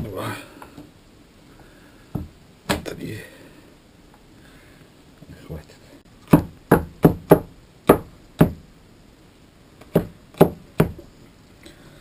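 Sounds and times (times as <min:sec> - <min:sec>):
cleaver chopping on wooden board: 0:06.3 - 0:08.6, 0:09.9 - 0:11.0.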